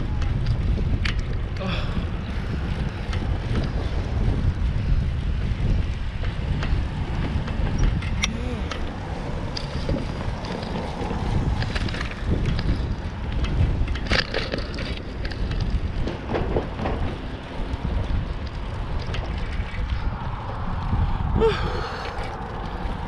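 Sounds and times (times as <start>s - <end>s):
wind buffeting microphone: 0.0s - 23.0s
knocks and rattles: 6.2s - 20.1s.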